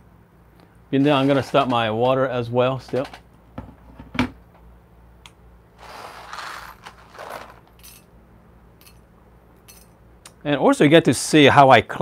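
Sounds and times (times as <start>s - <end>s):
coffee gear scraping and rattling: 1.0s - 2.2s, 5.8s - 8.0s.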